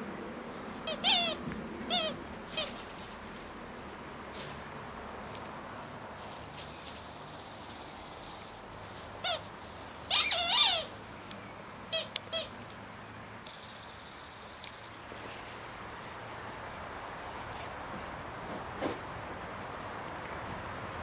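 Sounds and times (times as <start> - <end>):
puppies yelping and squealing: 0.9 - 2.8, 9.2 - 9.5, 10.1 - 11.0.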